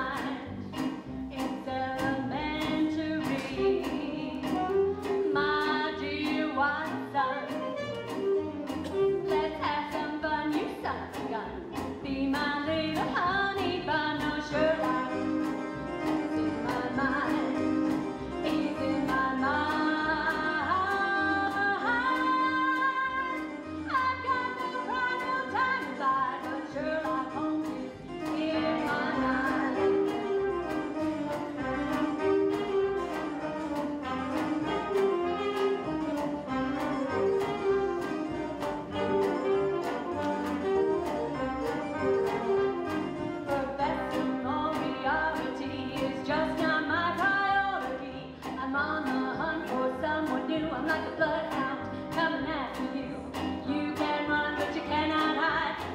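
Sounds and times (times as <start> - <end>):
pit orchestra playing show tune: 3.2 - 5.8, 7.2 - 9.7, 14.6 - 46.0.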